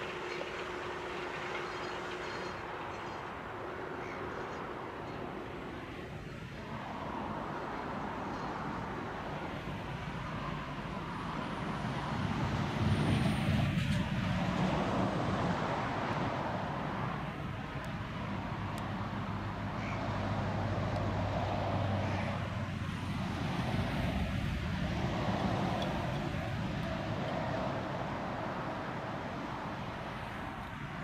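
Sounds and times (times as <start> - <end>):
distant tractor diesel engine: 0.0 - 6.7.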